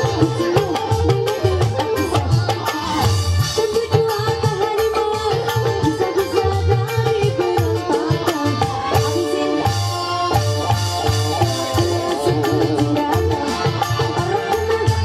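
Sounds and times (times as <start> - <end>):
hand drum strokes: 0.0 - 15.0
live band melody: 0.0 - 15.0.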